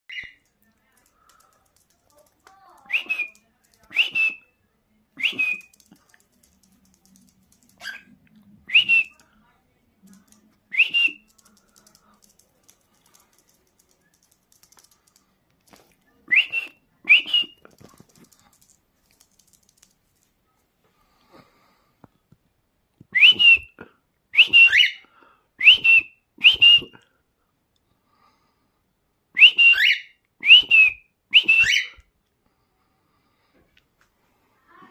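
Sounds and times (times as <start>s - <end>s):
cockatiel whistled calls: 24.4s - 25.0s, 29.4s - 32.0s.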